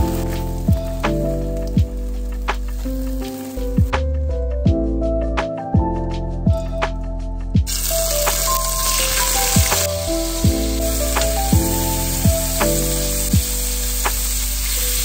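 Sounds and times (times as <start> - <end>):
shrimp sizzling in hot oil: 0.0 - 3.9, 7.7 - 15.0
music with low drum beat: 0.0 - 14.7.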